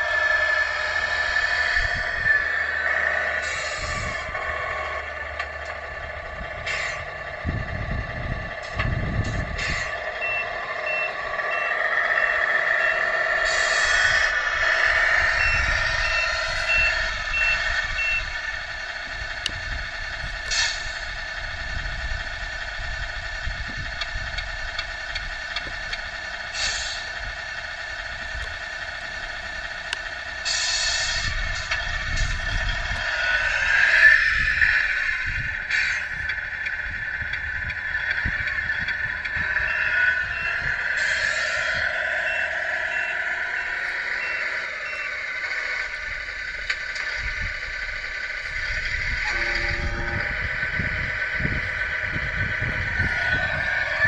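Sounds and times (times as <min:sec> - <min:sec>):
simulated truck engine idling: 0:00.0 - 0:54.0
high reversing beep: 0:09.2 - 0:18.4, 0:38.0 - 0:46.4, 0:48.4 - 0:54.0.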